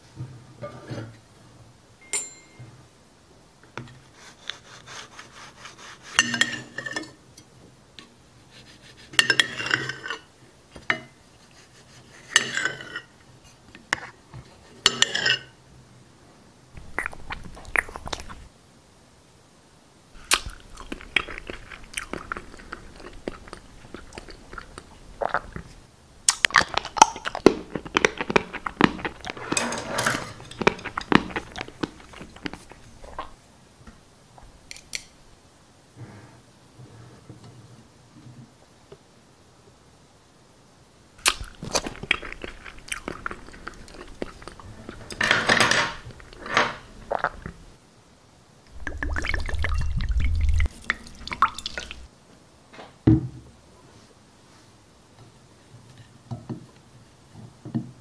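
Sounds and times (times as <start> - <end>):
crunchy chewing: 16.8 - 18.5, 20.2 - 33.4, 41.2 - 47.6.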